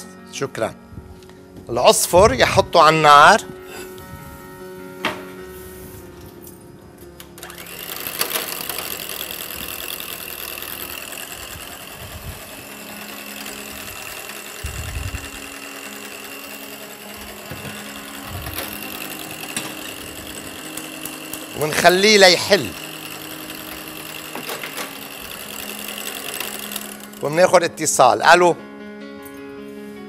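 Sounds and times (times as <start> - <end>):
electric stand mixer running: 7.3 - 28.0.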